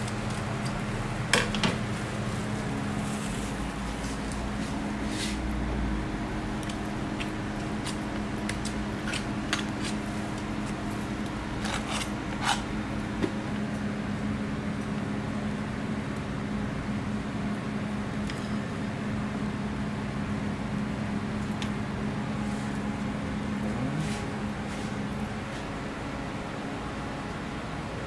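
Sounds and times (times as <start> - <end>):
machine hum: 0.0 - 28.0
utensils clicking and scraping: 6.6 - 12.7.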